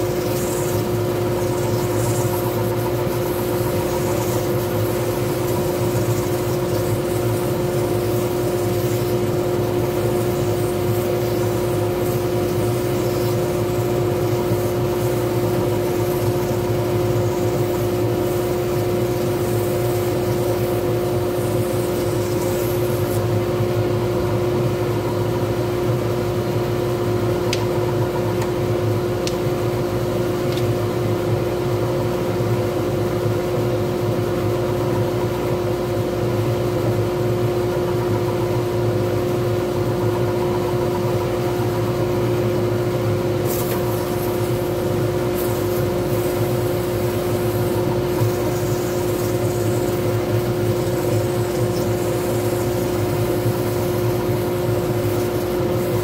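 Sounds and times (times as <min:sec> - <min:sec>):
wood lathe motor whine: 0:00.0 - 0:23.9, 0:43.2 - 0:56.0.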